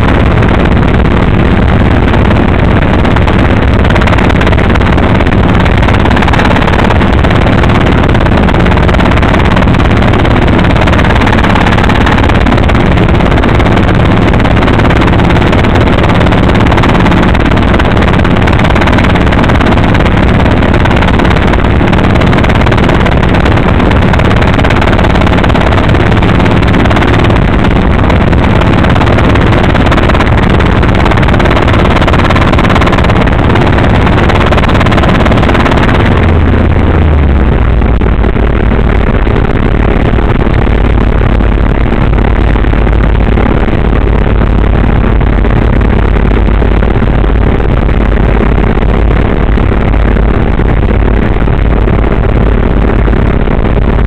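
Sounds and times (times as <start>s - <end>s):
helicopter engine and rotors drone: 0.0s - 54.0s
low hum: 0.0s - 54.0s.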